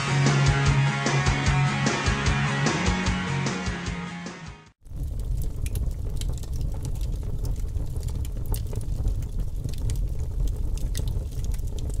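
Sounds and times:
small crackles: 4.8 - 12.0
steady low rumble: 4.8 - 12.0.

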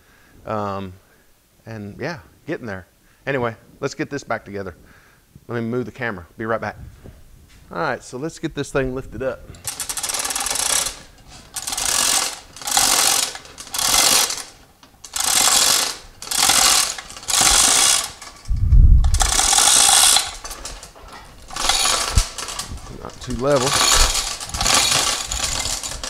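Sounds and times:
chain hoist chains rattling: 9.5 - 26.0.

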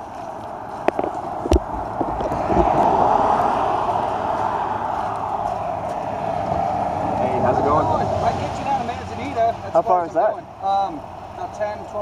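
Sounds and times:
car road and engine noise: 0.0 - 12.0
thumps: 0.9 - 2.8.

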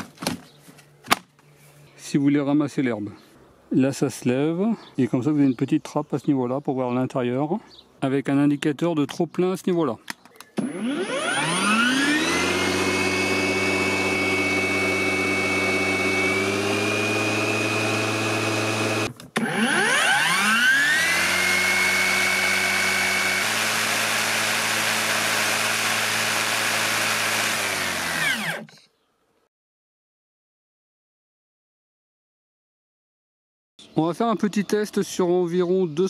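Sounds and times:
electric mower motor whining: 10.6 - 28.8.

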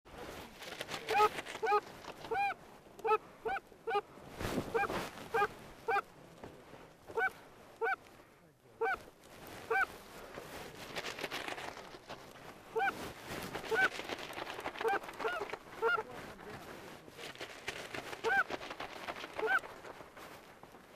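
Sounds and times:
geese honking: 7.2 - 8.0.

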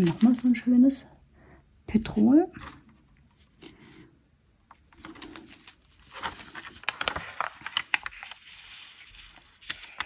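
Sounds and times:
paper and plastic rustling: 0.0 - 0.7, 4.7 - 10.0.

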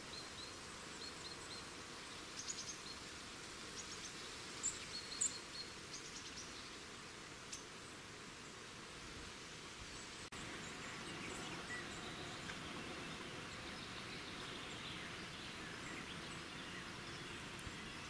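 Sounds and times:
outdoor hiss: 0.0 - 18.0.

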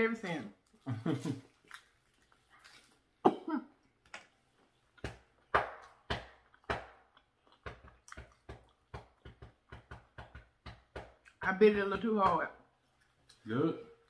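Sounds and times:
crunchy chewing: 0.6 - 3.2.

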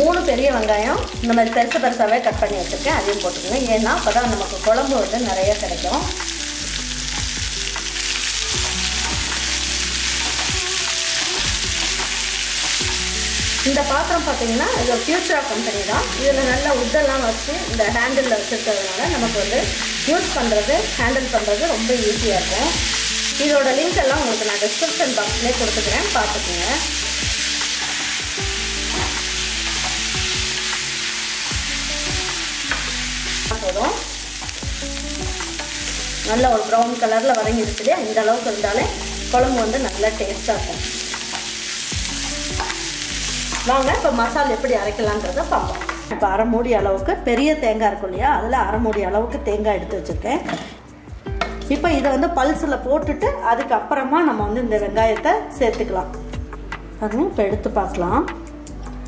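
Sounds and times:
onions sizzling in hot oil: 0.0 - 46.2
light background tune: 0.0 - 59.0.

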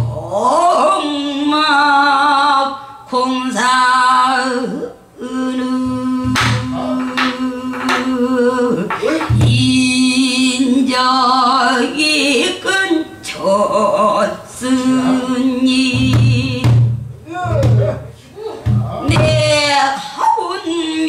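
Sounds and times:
woman singing long wavering notes: 0.0 - 16.8.

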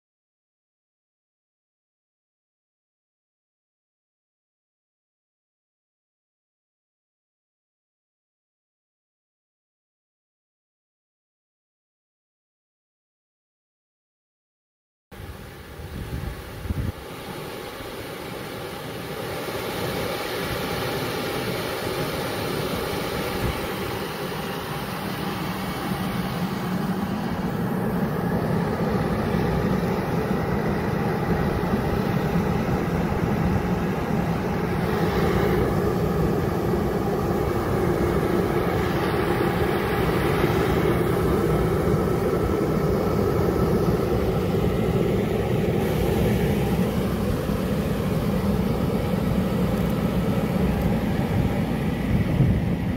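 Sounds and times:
blower motor hum and fan rush: 15.2 - 52.9.

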